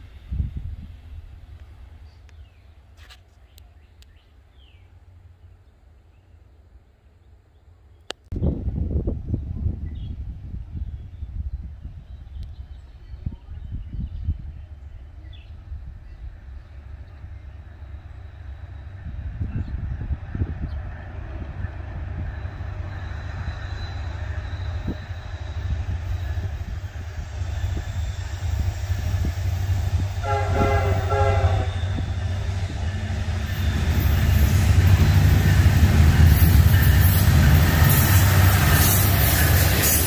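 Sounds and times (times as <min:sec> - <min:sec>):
locomotive engine rumble: 0:08.5 - 0:40.0
wheel and rail noise: 0:14.7 - 0:40.0
locomotive horn blast: 0:30.1 - 0:32.3.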